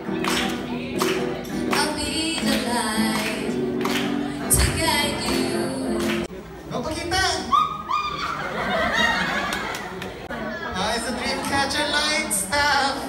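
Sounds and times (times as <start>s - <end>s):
woman singing: 1.6s - 6.3s.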